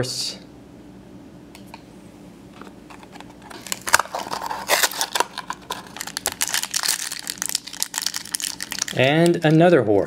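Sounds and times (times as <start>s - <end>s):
cardboard packaging tearing: 3.4s - 9.6s.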